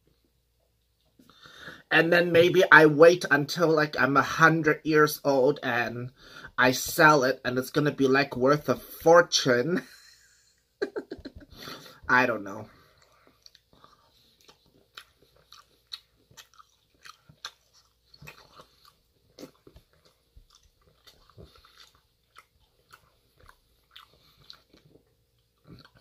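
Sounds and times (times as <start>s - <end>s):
faint mouth chewing: 12.7s - 26.0s.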